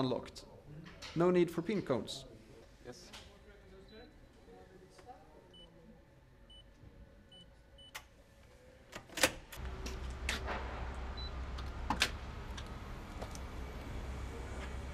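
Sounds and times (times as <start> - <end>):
street background rumble: 9.6 - 14.9.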